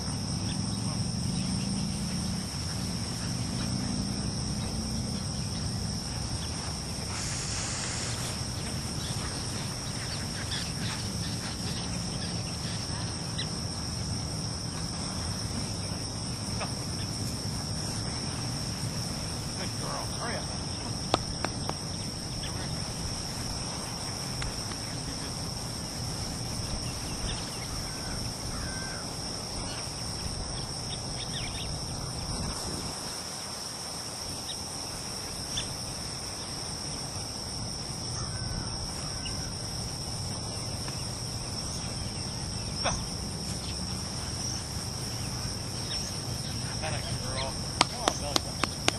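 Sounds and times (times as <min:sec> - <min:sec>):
crickets trilling: 0:00.0 - 0:48.9
low wind-like rumble: 0:21.4 - 0:33.2.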